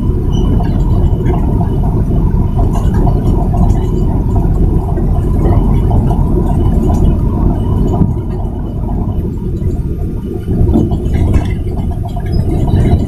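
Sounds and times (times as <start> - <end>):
truck engine low rumble: 0.0 - 13.0.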